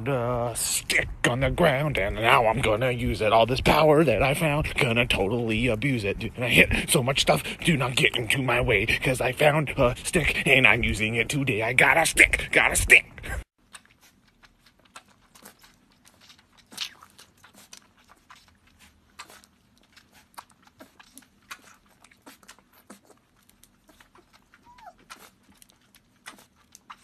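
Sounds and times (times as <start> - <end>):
puppy sucking from a bottle: 13.5 - 27.0
puppy squeak: 24.6 - 25.3.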